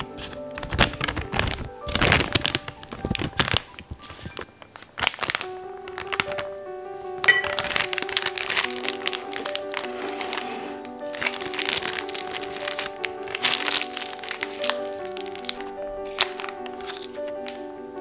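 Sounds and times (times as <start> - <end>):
plastic bag crinkling: 0.0 - 17.7
soft background music: 0.0 - 18.0.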